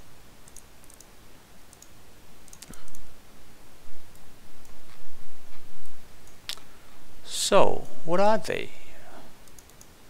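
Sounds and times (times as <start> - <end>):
computer mouse clicking: 0.4 - 1.1, 1.7 - 3.1, 9.4 - 10.0.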